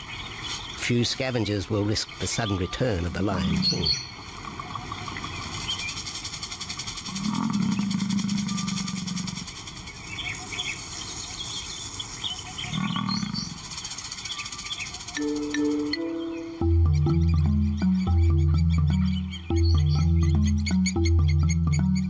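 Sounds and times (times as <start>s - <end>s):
lion calling: 3.0s - 4.1s, 7.1s - 9.5s, 12.6s - 13.7s.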